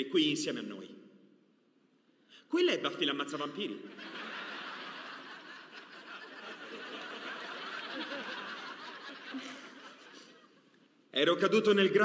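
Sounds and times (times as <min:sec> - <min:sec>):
audience laughing: 0:03.9 - 0:10.8.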